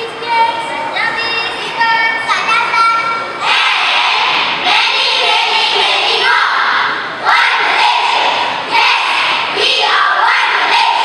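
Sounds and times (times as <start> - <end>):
children reciting in unison: 3.4 - 11.0.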